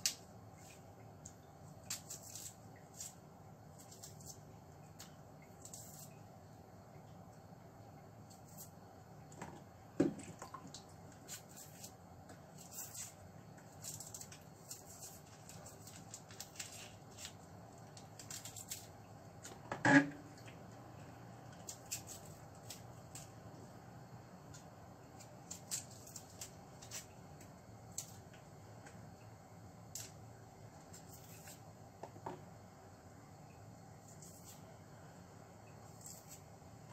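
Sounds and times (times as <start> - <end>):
knife scraping shallot skins: 1.8 - 4.4, 5.0 - 6.2, 11.2 - 17.4, 21.6 - 23.4, 34.0 - 34.6, 35.8 - 36.4.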